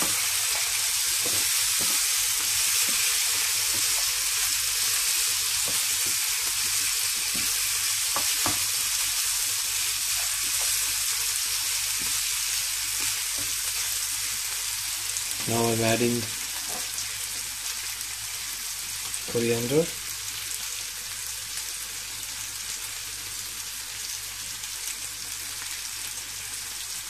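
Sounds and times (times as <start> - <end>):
spatula scraping and tapping pan: 0.0 - 4.1, 5.6 - 8.7
chicken sizzling in a frying pan: 0.0 - 27.0.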